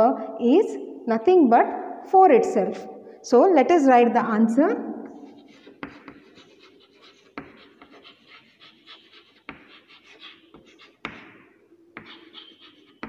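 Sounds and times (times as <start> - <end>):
chalk scratching on chalkboard: 5.0 - 13.0
chalk tapping on board: 5.0 - 13.0.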